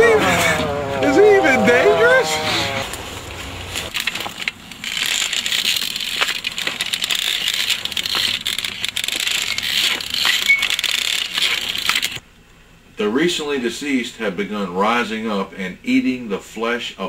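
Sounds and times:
metal stilts rattling and clinking: 3.8s - 12.2s.

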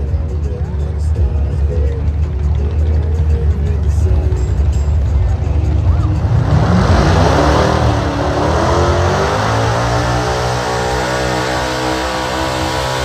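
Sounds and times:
truck engine at full throttle: 0.0s - 13.0s.

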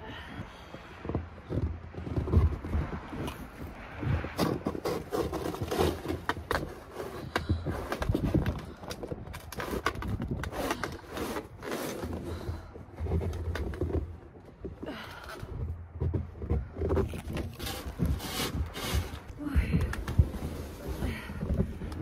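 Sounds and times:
snow shovel scraping: 17.5s - 19.3s.

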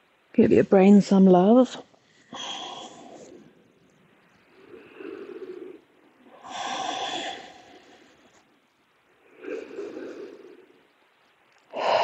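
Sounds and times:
person breathing deeply: 2.1s - 3.8s, 4.4s - 8.5s, 9.1s - 10.9s, 11.7s - 12.0s.

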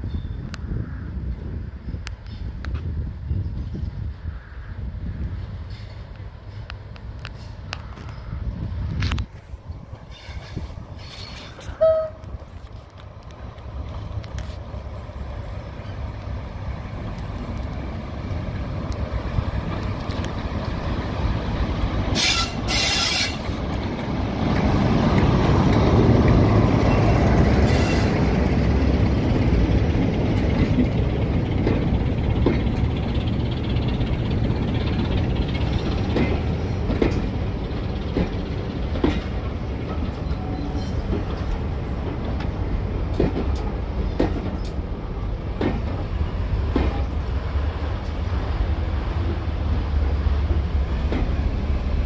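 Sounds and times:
diesel locomotive passing: 0.0s - 52.0s
wheels clicking over rail joints: 9.9s - 52.0s.

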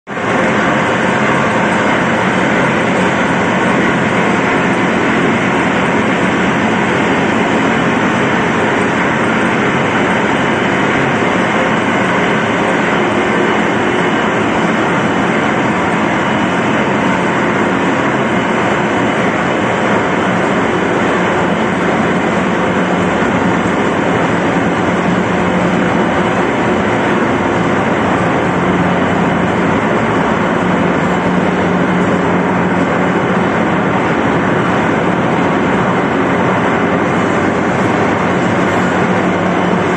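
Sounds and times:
marine diesel engine running: 0.1s - 39.9s.

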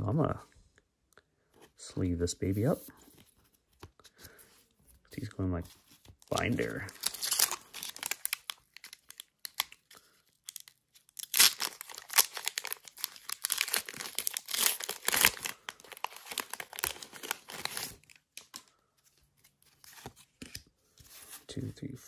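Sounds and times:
foil wrapper crinkling and tearing: 6.3s - 18.7s.

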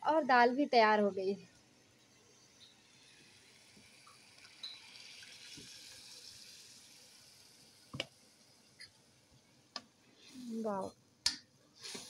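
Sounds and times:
liquid pouring hiss: 2.1s - 8.9s.

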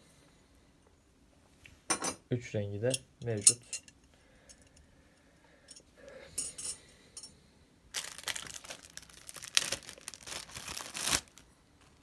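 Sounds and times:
metal clinking: 5.7s - 7.3s
plastic bag rustling: 7.9s - 12.0s.

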